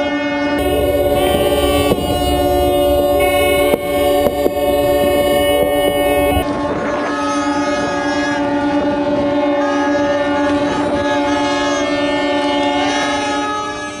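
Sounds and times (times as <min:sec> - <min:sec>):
wind: 0:00.0 - 0:14.0
boat horns sounding: 0:00.4 - 0:06.5
sea noise: 0:00.6 - 0:06.4.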